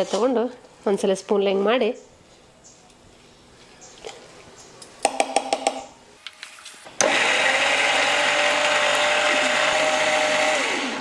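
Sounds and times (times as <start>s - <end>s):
mixer grinder whining: 6.9s - 11.0s.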